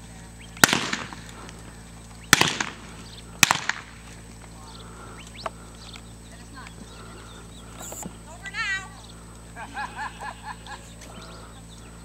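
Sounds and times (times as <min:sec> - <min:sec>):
revolver shots: 0:00.6 - 0:01.3, 0:02.3 - 0:04.0.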